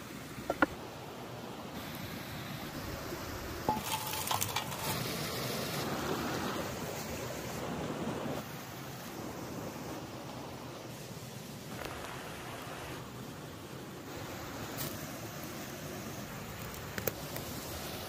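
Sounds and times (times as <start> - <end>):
stream rushing: 0.0 - 18.0
light clicks and clinks: 3.7 - 5.1.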